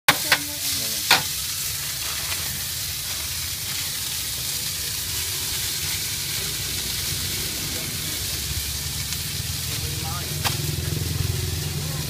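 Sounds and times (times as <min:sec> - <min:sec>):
metal ladle clanking on pan: 0:00.1 - 0:01.4
vegetables sizzling in oil: 0:00.1 - 0:12.0.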